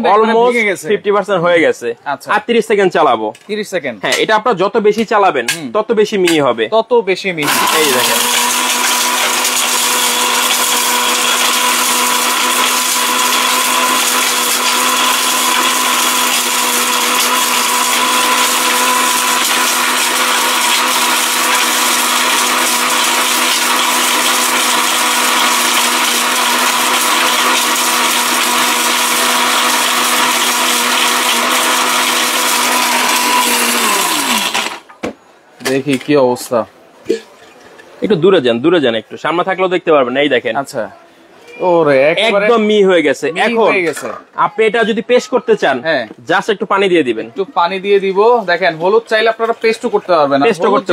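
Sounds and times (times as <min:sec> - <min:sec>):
electric blender grinding: 0:07.4 - 0:34.9.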